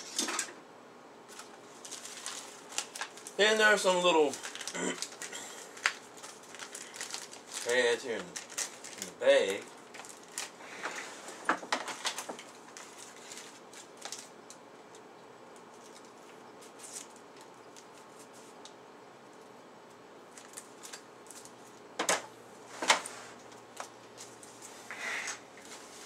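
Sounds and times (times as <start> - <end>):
plastic bag crinkling: 1.3 - 18.7, 20.2 - 22.0.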